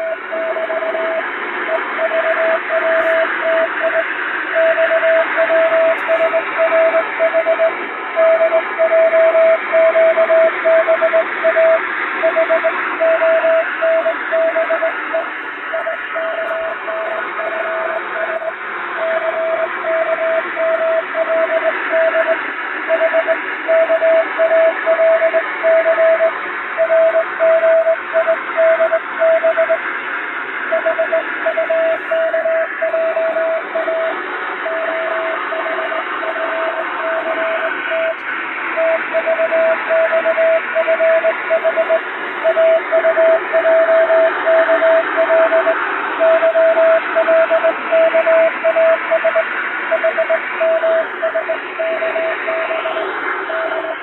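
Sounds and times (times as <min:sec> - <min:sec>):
morse code tone: 0:00.0 - 0:29.8, 0:30.7 - 0:54.0
shortwave radio hiss: 0:29.9 - 0:39.1, 0:49.4 - 0:54.0.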